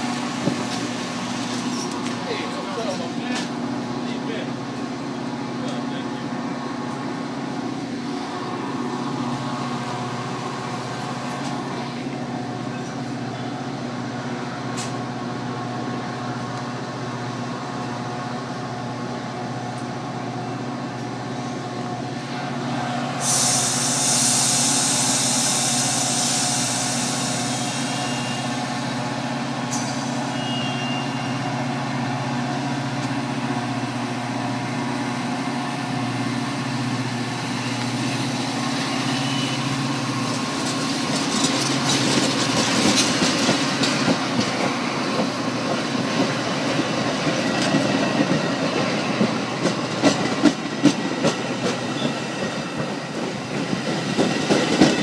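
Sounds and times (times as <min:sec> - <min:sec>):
diesel train humming: 0:00.0 - 0:55.0
compressed air hissing: 0:23.2 - 0:28.4.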